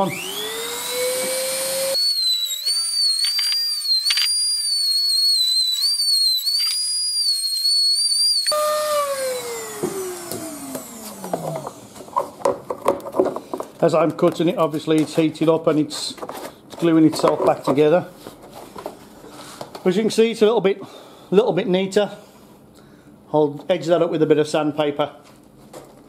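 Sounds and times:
rotary tool cutting plastic: 0.2 - 11.8
clicks: 3.2 - 4.4.

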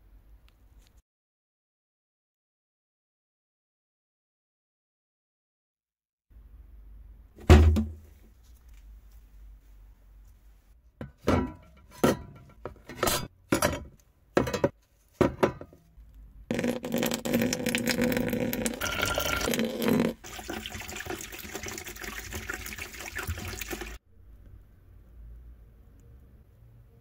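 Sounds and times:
metal parts knocking into plastic tub: 7.4 - 8.0
liquid pouring and splashing: 16.5 - 24.0.

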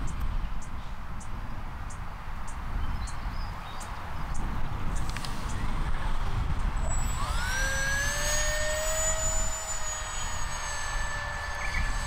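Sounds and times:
wind on microphone: 0.0 - 12.0
electric ducted fan whining: 4.2 - 12.0.

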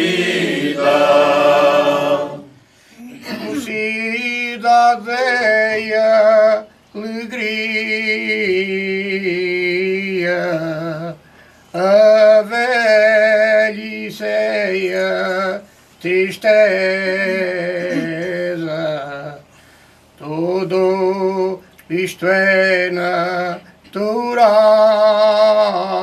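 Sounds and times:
male choir singing unaccompanied: 0.0 - 11.2.

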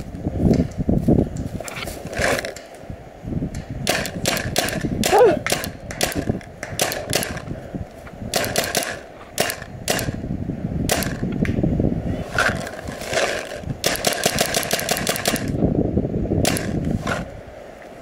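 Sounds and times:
paintball markers firing: 3.6 - 7.6, 8.3 - 10.2, 10.9 - 11.4, 12.4 - 15.6, 16.5 - 16.8.

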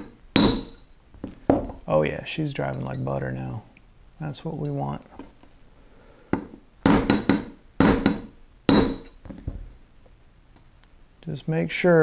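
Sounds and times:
hammer tapping steel punch: 0.0 - 0.8, 6.3 - 9.2.

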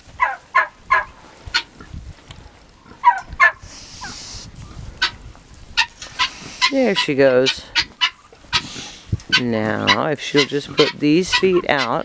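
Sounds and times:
fowl calling: 0.2 - 1.7, 2.9 - 4.4, 5.8 - 12.0
breathy hiss: 3.6 - 4.6.

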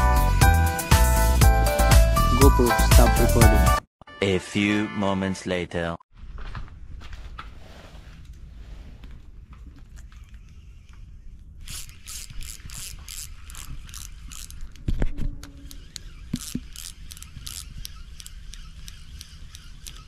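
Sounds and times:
fishing reel gears clicking: 11.6 - 14.9, 15.5 - 20.0.

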